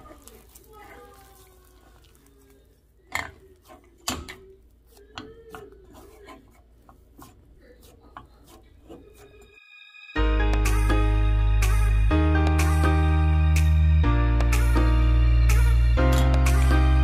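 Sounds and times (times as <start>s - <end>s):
hand kneading dough: 0.0s - 9.5s.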